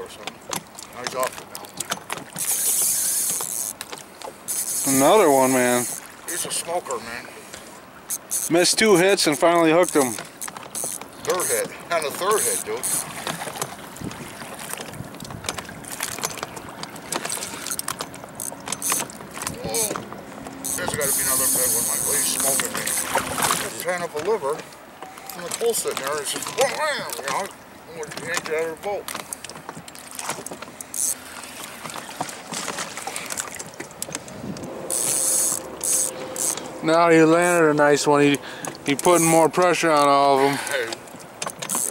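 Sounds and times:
water lapping against boat hull: 0.0 - 41.9
fishing reel clicking: 2.4 - 3.9, 4.5 - 6.0, 8.1 - 13.1, 17.3 - 19.1, 20.6 - 23.1, 30.9 - 31.2, 34.9 - 36.7, 39.0 - 39.4, 41.4 - 41.9
wind noise: 13.8 - 16.6, 34.2 - 35.1
sharp clicks and knocks: 14.7 - 23.1, 41.1 - 41.9.

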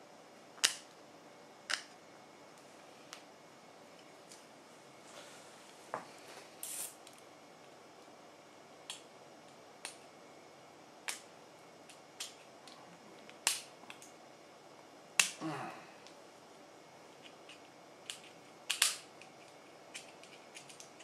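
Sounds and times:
sharp clicks of small hard parts: 17.5 - 21.0.

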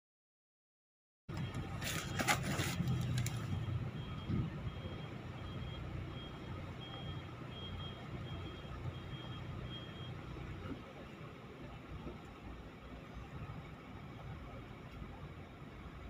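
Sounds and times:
reversing alarm beeping: 1.3 - 10.8
truck engine running low: 1.3 - 16.0.

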